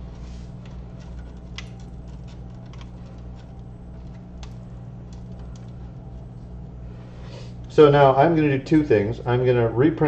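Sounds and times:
steady low hum: 0.0s - 10.0s
light clicks and taps: 0.6s - 6.3s.

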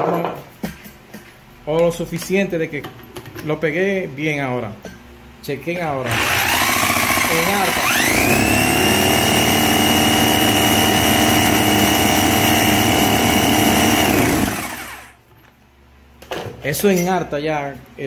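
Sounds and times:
electric drill whine: 6.0s - 15.2s.

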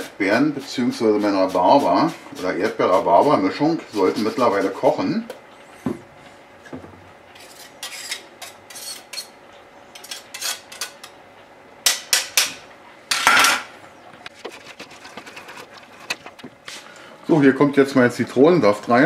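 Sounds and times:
knife scraping metal grater: 7.4s - 9.3s, 10.0s - 11.0s, 14.3s - 16.4s.

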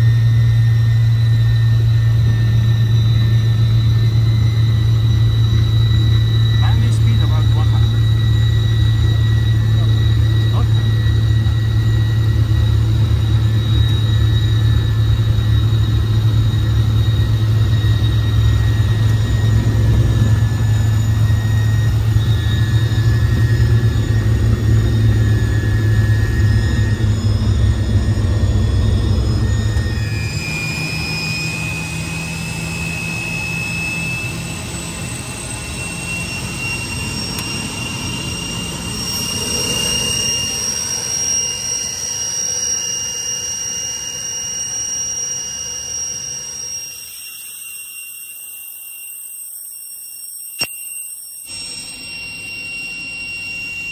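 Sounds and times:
heavy low engine rumble: 0.0s - 42.2s
jet engine high whine: 0.0s - 53.9s.

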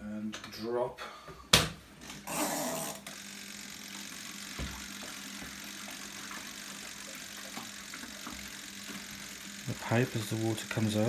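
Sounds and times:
washing machine motor hum: 1.8s - 11.0s.

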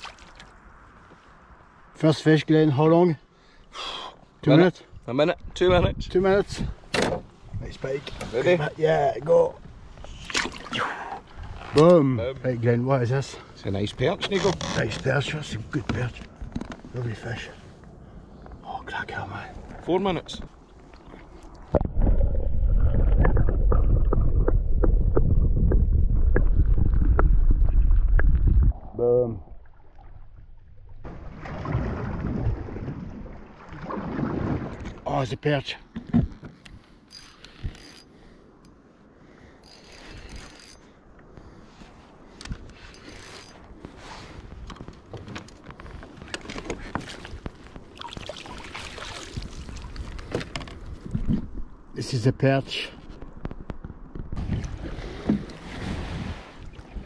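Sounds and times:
underwater rumble of moving water: 21.2s - 35.0s
water splashing against kayak: 29.5s - 35.0s, 43.7s - 51.5s, 54.2s - 57.0s
water pouring off net: 31.1s - 34.8s, 48.0s - 50.0s.

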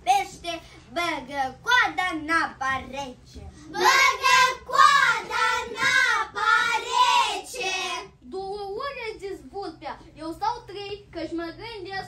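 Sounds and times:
children singing: 3.8s - 8.0s.

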